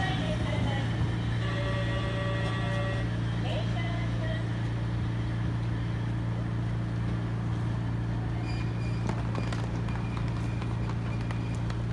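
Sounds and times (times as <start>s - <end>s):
traffic noise: 0.0s - 11.9s
footsteps on pavement: 8.9s - 11.9s.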